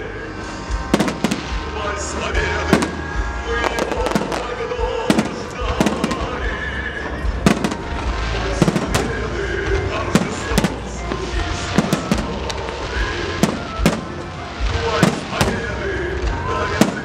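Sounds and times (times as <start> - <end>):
fireworks rumble and crackle: 0.0 - 17.0
music playing: 0.0 - 17.0
fireworks shells bursting: 10.0 - 15.8.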